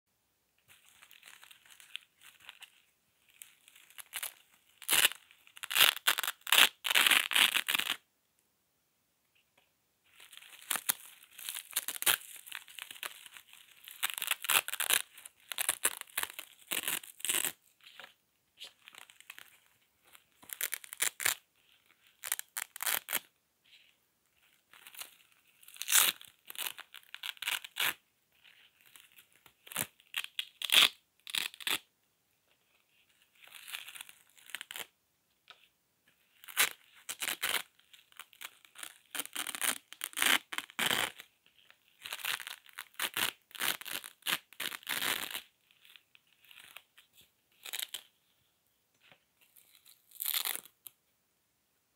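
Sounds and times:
velcro being ripped apart: 3.7s - 8.0s, 10.3s - 17.7s, 18.8s - 19.5s, 20.4s - 21.4s, 22.2s - 23.3s, 24.8s - 28.0s, 28.8s - 31.9s, 33.4s - 34.9s, 36.4s - 41.3s, 42.0s - 46.8s, 47.6s - 48.1s, 49.5s - 50.8s.

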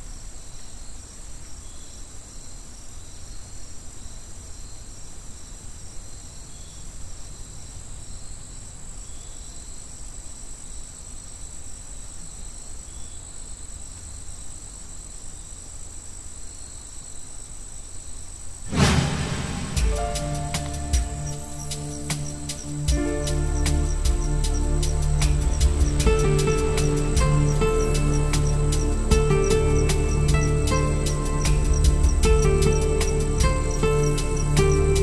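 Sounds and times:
low rumble: 18.7s - 35.0s
insects trilling: 20.4s - 35.0s.

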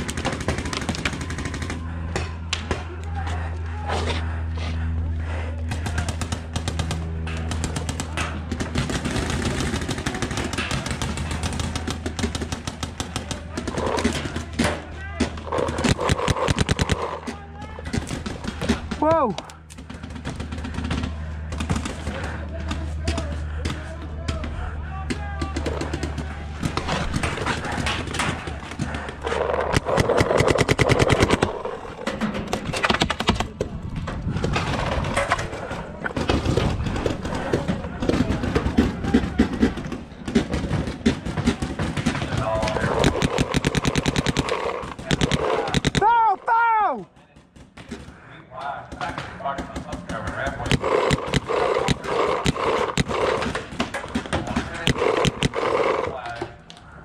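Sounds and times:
paintball markers firing: 15.3s - 22.4s, 25.4s - 31.8s, 36.4s - 46.1s, 49.0s - 56.4s
people shouting: 45.2s - 47.1s.

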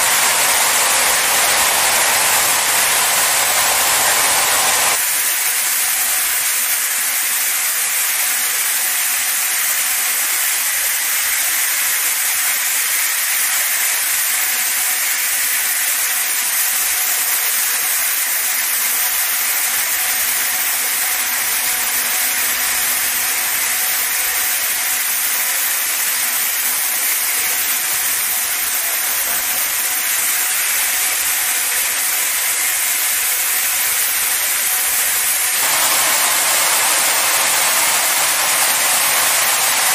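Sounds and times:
high-pressure water jets hissing: 0.0s - 5.0s, 18.6s - 39.9s.

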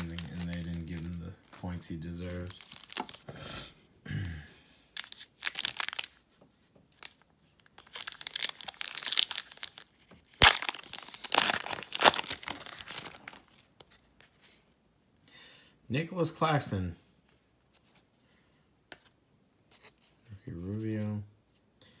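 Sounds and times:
foil wrapper crinkling: 0.0s - 3.2s, 5.0s - 6.2s, 7.0s - 13.7s
sharp crack of foil: 10.4s - 12.5s.

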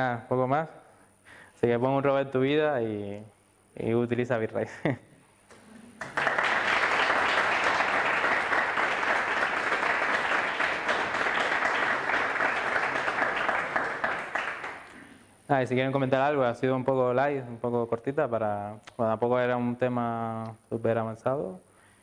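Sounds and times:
audience applauding: 5.5s - 15.1s.

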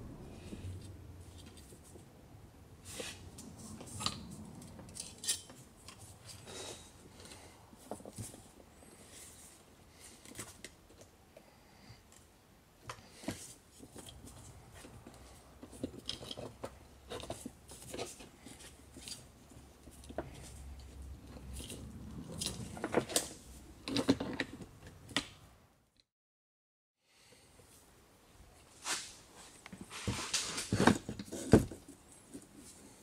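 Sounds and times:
small clicks and knocks of metal parts: 3.9s - 6.4s, 13.8s - 25.3s.

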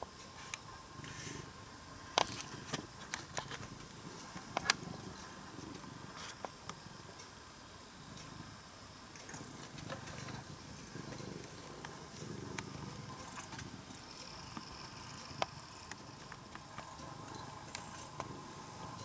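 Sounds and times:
cat purring: 0.3s - 19.0s
faint clicks: 2.1s - 7.4s, 8.1s - 19.0s.

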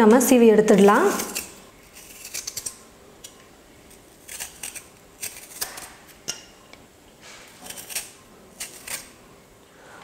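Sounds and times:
peeler scraping potato skin: 0.7s - 6.4s, 7.3s - 9.2s.

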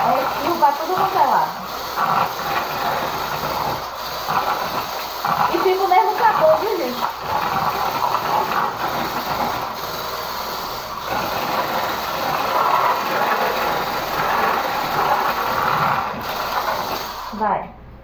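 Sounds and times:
electric stick mixer churning batter: 0.0s - 17.6s.

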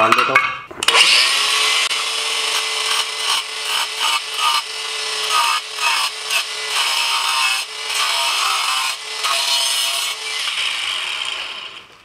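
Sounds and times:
angle grinder cutting tile: 0.8s - 12.0s.

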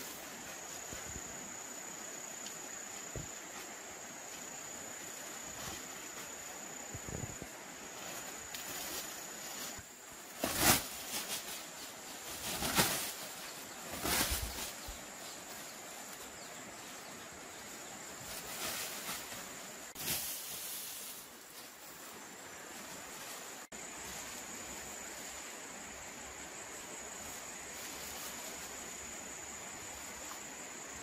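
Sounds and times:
high insect drone: 0.0s - 31.0s
net swishing through grass: 7.8s - 16.2s, 18.2s - 22.0s.

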